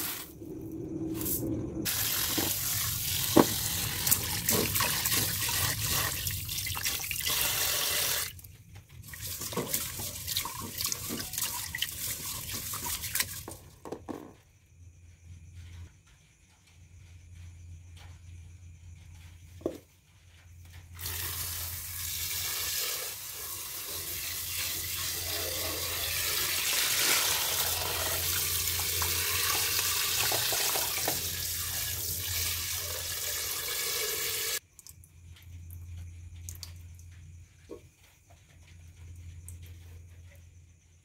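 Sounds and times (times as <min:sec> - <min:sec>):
rice grains pouring hiss: 0:00.0 - 0:06.6, 0:21.0 - 0:34.6.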